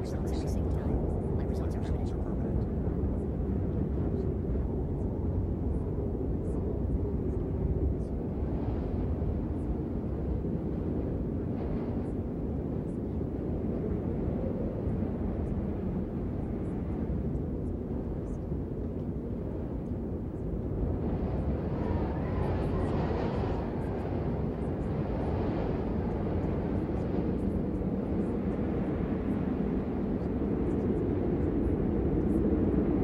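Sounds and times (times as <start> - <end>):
low rumbling noise: 0.0 - 33.0.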